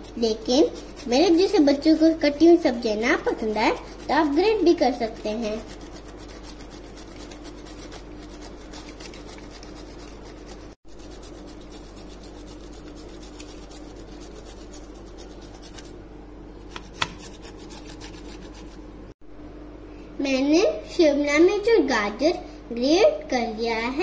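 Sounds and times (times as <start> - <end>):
pepper grating on grater: 0.0 - 16.0, 16.6 - 18.8.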